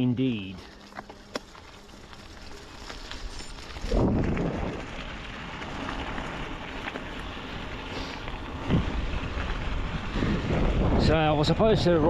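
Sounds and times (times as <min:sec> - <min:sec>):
wind buffeting microphone: 0:03.3 - 0:12.0.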